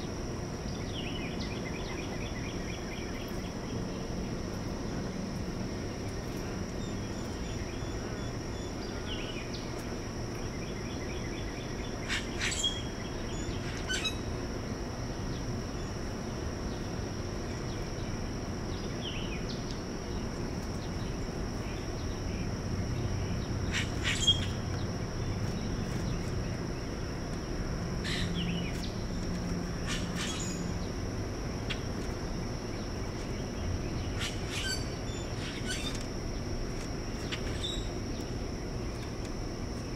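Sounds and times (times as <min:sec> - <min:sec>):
high-pitched insect drone: 0:00.0 - 0:39.9
bird chirps: 0:23.7 - 0:24.6, 0:33.9 - 0:36.0.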